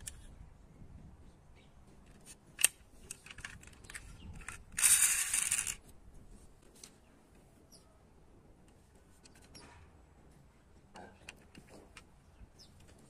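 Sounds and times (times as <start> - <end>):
toy bus plastic and metal clicks: 2.1 - 5.8.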